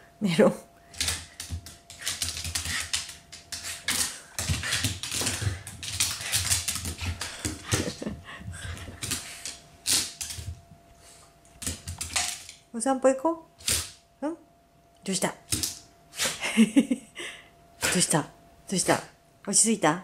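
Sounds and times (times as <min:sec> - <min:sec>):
dog claws clicking on wooden floor: 0:01.0 - 0:08.1, 0:08.7 - 0:10.6, 0:11.5 - 0:12.6.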